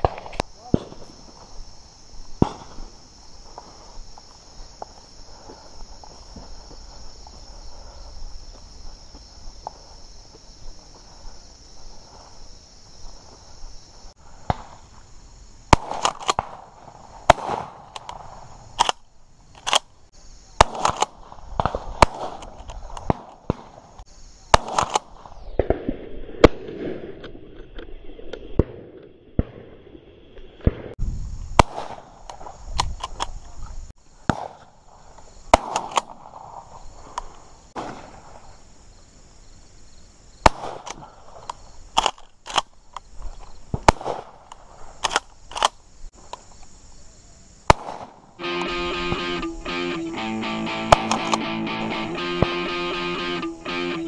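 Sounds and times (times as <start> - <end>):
shotgun shots: 0.0 - 1.2, 2.4 - 2.9, 15.7 - 16.7, 17.3 - 18.0, 20.6 - 23.9, 24.5 - 27.2, 31.6 - 32.2, 34.3 - 34.7, 35.5 - 36.4, 37.8 - 38.3, 40.4 - 41.0, 43.8 - 44.4, 47.7 - 49.5, 50.7 - 54.0.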